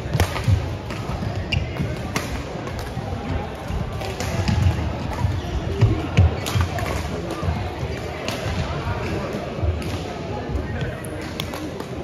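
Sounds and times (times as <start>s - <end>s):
rackets striking shuttlecock: 0.0s - 3.0s
background chatter: 0.0s - 12.0s.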